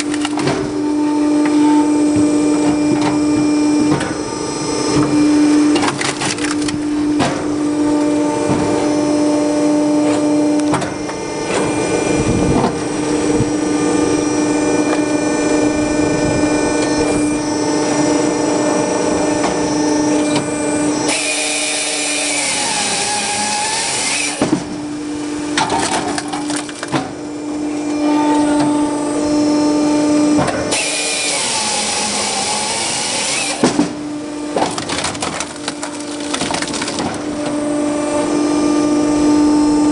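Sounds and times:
firewood processor humming: 0.0s - 39.9s
wood splitting and dropping: 5.8s - 7.4s, 25.6s - 27.1s, 34.6s - 37.3s
chainsaw cutting log: 21.1s - 24.7s, 30.7s - 34.0s.

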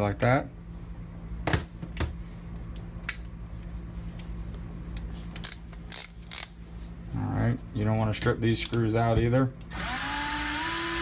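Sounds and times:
steady low hum: 0.0s - 11.0s
screws and tools clicking: 5.4s - 6.6s.

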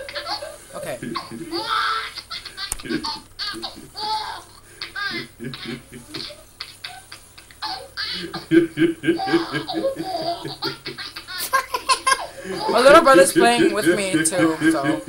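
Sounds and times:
baby laughing: 0.0s - 15.0s
man laughing: 0.8s - 1.7s, 2.4s - 4.0s, 5.2s - 6.4s, 8.2s - 15.0s.

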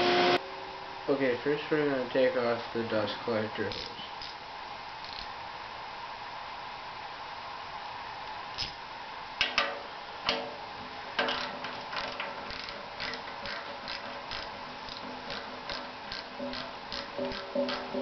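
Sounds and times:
hand ratchet clicking: 5.0s - 5.3s, 8.6s - 8.8s, 11.3s - 18.0s.

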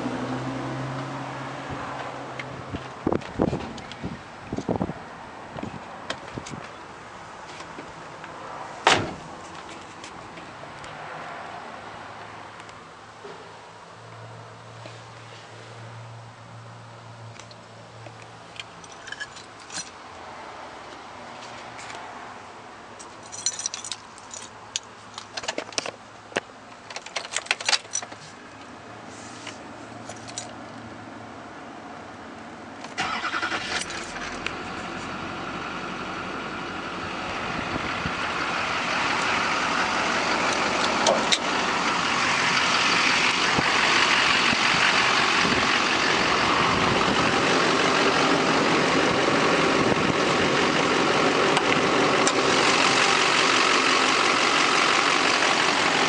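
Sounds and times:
keys rattling: 18.6s - 20.0s, 23.0s - 25.9s, 26.9s - 28.3s, 30.0s - 30.6s
diesel engine cranking and idling: 24.7s - 56.0s.

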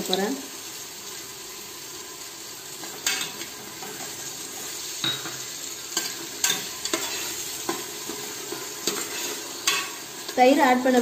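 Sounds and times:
food sizzling in oil: 0.0s - 11.0s
spatula scraping a pot: 6.0s - 10.0s.

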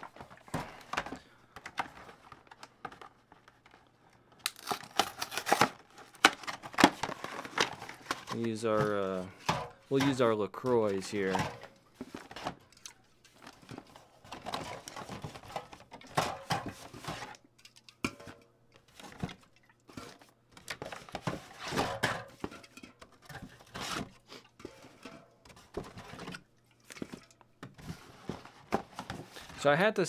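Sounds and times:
cardboard and fabric rustling: 0.0s - 3.8s, 5.0s - 17.4s, 27.0s - 29.7s.

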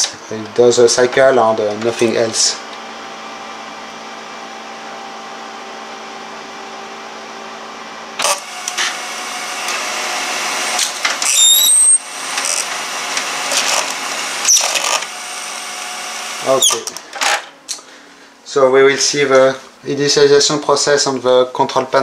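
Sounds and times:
printer motor hum: 0.0s - 17.4s
short rising whines: 8.1s - 12.3s
printer gears whirring clatter: 8.2s - 9.9s, 10.7s - 17.5s.

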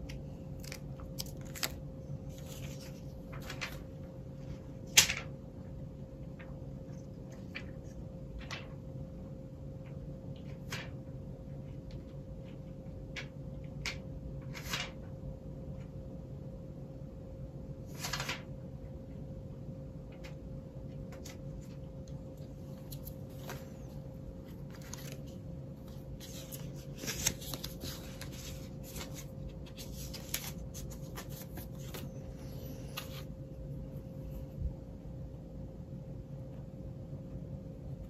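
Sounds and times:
steady hum: 0.0s - 38.0s
packaging rustling: 22.7s - 32.2s.

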